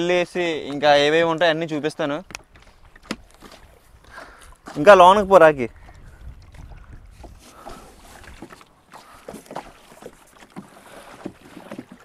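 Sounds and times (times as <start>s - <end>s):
water splashing against boat: 0.0s - 12.0s
wind rumble on microphone: 2.3s - 8.5s
pole splashing in water: 2.4s - 5.0s, 5.9s - 12.0s.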